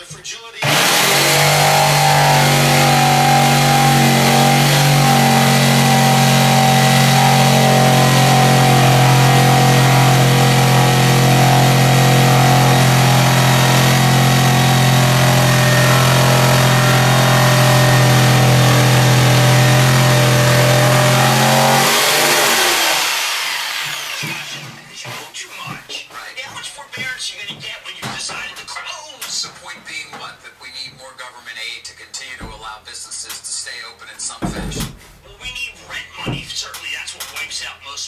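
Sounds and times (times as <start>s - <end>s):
jigsaw sawing through wood: 0.6s - 25.2s.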